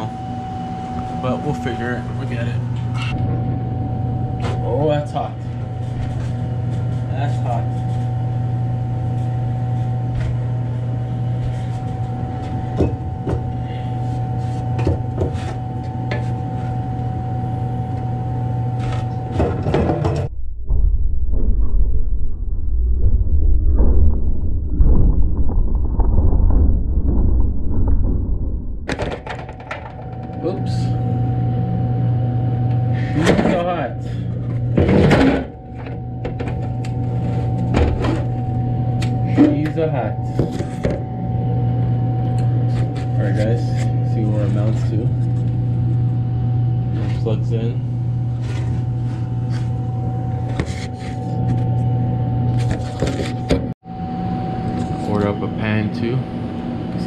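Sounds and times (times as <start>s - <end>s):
faint steady whine: 0.0s - 20.3s, 28.8s - 57.0s
refrigeration machinery hum: 0.0s - 57.0s
muffled rumbling and knocks: 19.3s - 30.4s.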